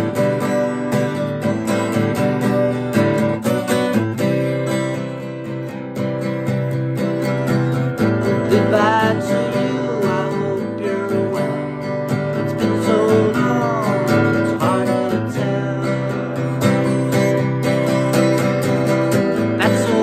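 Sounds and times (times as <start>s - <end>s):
acoustic guitar strumming: 0.0s - 20.0s
man singing: 8.2s - 18.1s, 19.2s - 20.0s.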